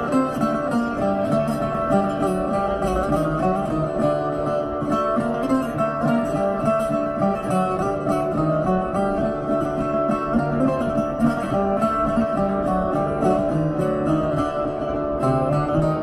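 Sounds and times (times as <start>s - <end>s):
stringed instrument melody: 0.0s - 16.0s.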